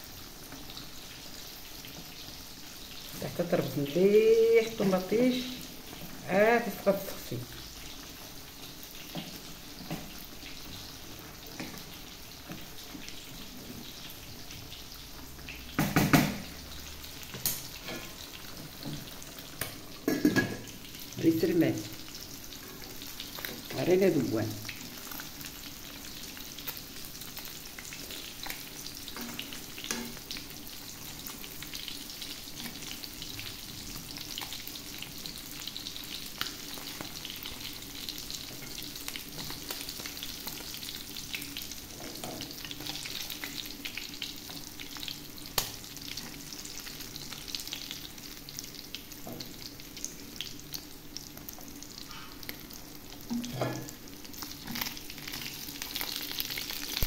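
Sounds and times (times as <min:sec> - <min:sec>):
fish sizzling in oil: 0:00.0 - 0:57.0
fork scraping and tapping pan: 0:29.2 - 0:30.2.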